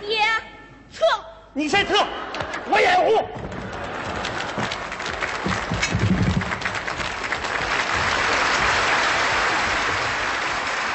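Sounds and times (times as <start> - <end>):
audience applauding: 3.4 - 10.9.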